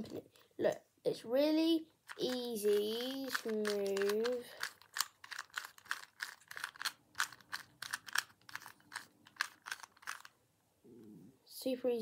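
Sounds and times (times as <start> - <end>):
puzzle cube clicking: 2.0 - 10.4.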